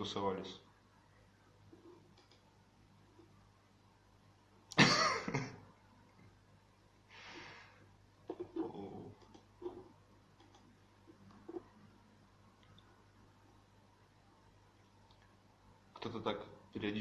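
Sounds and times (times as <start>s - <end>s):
man coughing loudly: 4.8s - 5.6s
breathing out: 7.1s - 7.8s.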